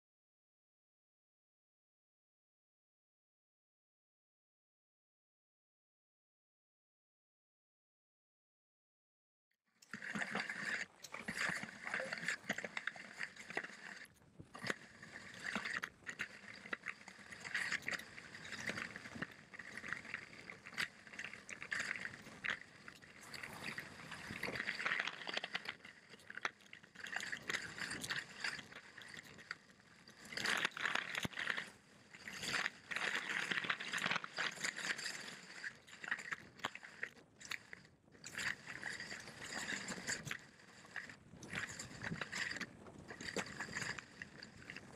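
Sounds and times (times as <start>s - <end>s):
crunches and clicks: 9.8s - 44.9s.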